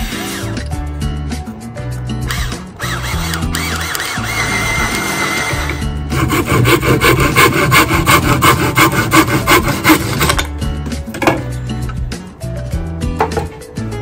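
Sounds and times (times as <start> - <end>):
cordless drill driving screw: 2.3 - 5.8
hand saw cutting wood: 2.9 - 10.4.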